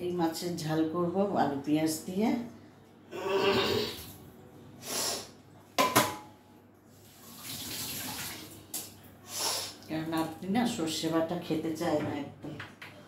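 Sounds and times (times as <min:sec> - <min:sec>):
water running from a tap: 0:07.0 - 0:09.0.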